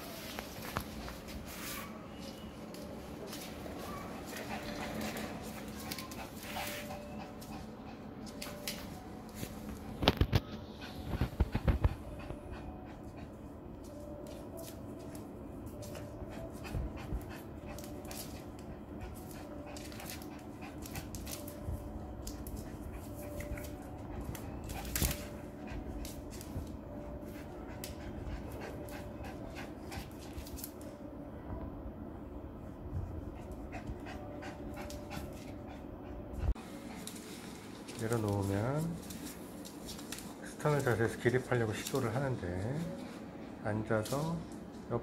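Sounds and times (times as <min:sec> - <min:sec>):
dog panting: 0:03.3 - 0:09.9, 0:10.6 - 0:13.7, 0:15.7 - 0:30.6, 0:33.1 - 0:37.4.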